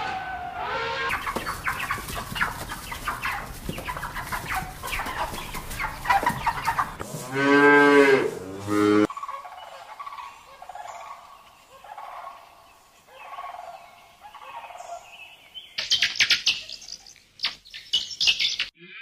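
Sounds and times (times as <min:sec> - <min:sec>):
guinea pigs squeaking: 0:01.1 - 0:07.0, 0:15.8 - 0:18.7.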